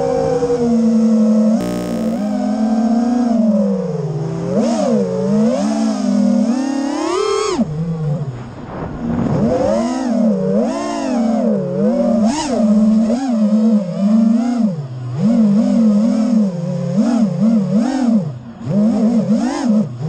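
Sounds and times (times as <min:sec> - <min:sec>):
drone motors whining: 0:01.6 - 0:02.5.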